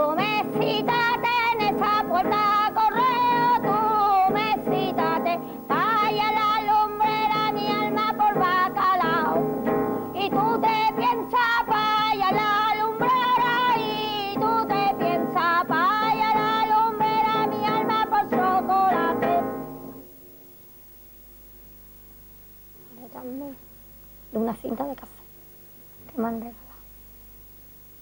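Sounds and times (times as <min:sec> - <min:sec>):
woman singing with vibrato: 0:00.0 - 0:19.8.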